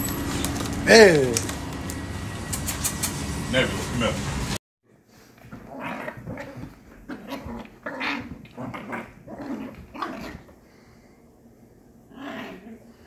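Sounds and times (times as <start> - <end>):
puppies growling: 5.5 - 10.6, 12.0 - 13.0.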